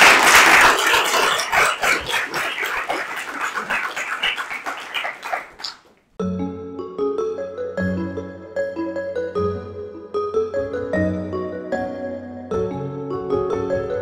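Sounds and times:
audience applauding: 0.0 - 5.9
music: 6.2 - 14.0.

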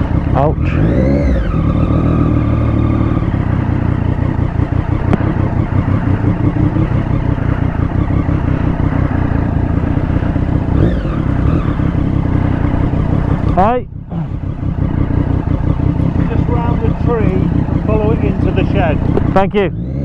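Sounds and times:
motorcycle engine running: 0.0 - 20.0.

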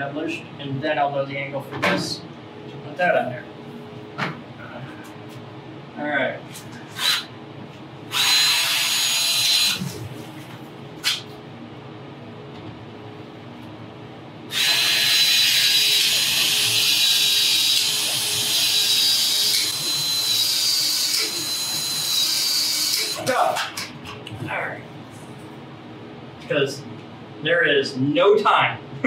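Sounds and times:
expansion tool motor whining: 8.1 - 9.9, 14.5 - 23.3.

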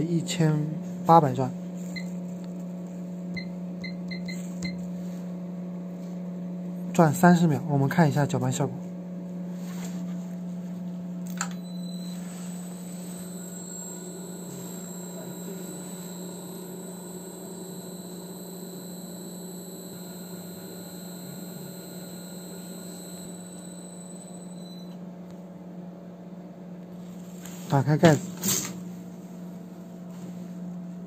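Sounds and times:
steady high whine: 11.3 - 25.0
mixer motor hum: 11.3 - 25.1.

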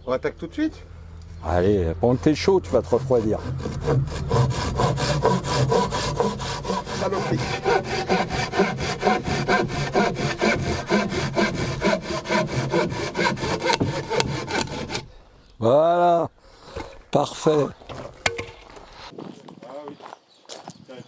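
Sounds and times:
hand saw cutting wood: 1.6 - 15.1.

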